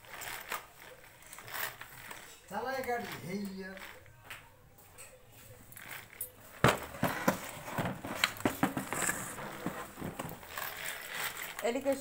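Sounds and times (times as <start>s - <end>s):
hard plastic knocks and taps: 6.6s - 10.4s.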